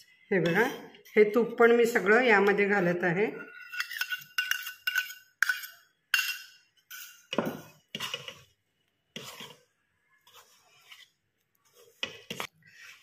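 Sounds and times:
metal spoon clinking on steel: 0:03.5 - 0:07.3.

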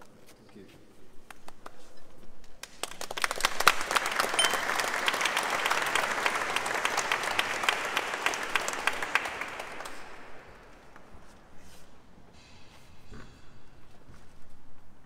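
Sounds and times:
audience applauding: 0:02.6 - 0:11.1.

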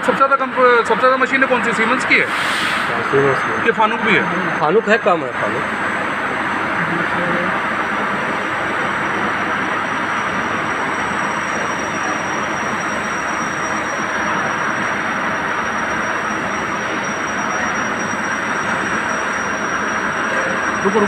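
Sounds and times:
machinery running: 0:00.0 - 0:21.0.

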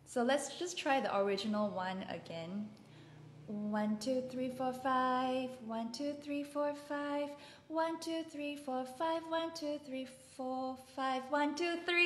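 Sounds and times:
woman singing vocal warm-up: 0:03.5 - 0:12.0.

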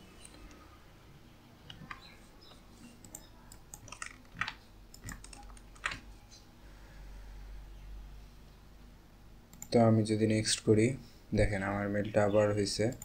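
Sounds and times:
faint keyboard typing: 0:00.2 - 0:00.7, 0:01.6 - 0:06.4, 0:09.5 - 0:09.9, 0:12.8 - 0:13.0.

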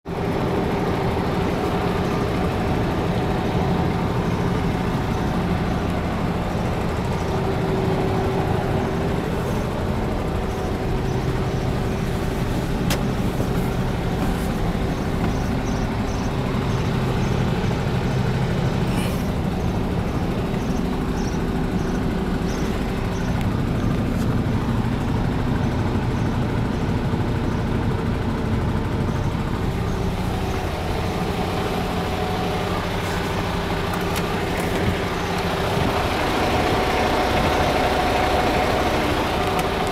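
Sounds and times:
diesel truck engine idling: 0:00.1 - 0:39.9.

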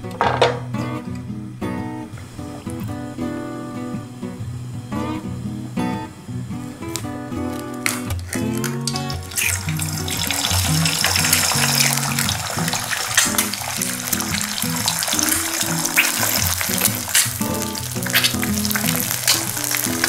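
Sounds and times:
background music: 0:04.8 - 0:20.0
eggs sizzling and popping in oil: 0:07.8 - 0:20.0.

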